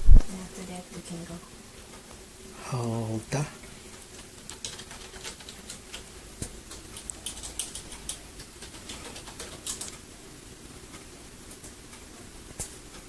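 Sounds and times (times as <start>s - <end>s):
keyboard typing: 4.2s - 10.0s.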